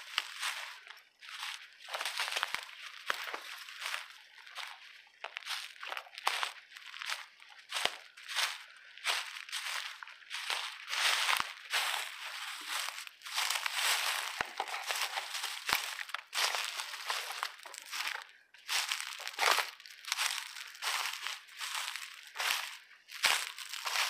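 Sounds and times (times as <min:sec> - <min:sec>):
footsteps crunching through dry leaves: 0:00.0 - 0:24.0.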